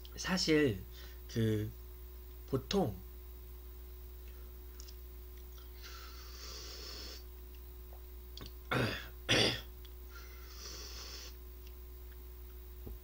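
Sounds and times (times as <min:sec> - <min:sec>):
man coughing: 0:08.7 - 0:09.7.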